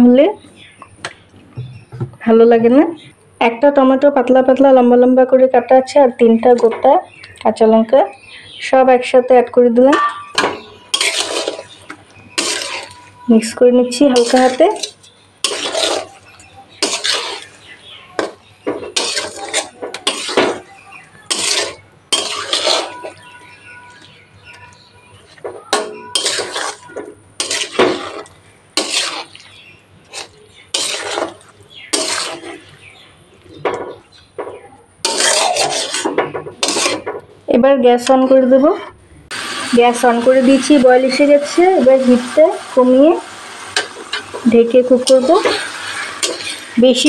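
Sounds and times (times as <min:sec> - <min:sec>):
metal spatula scraping pan: 0:09.9 - 0:32.8, 0:35.0 - 0:37.2, 0:43.7 - 0:47.0.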